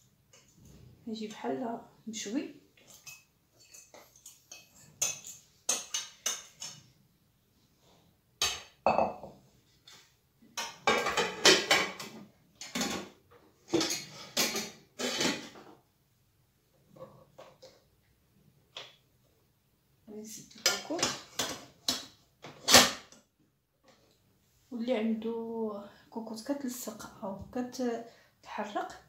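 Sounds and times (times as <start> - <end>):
dishes set down on metal worktop: 8.4 - 9.3.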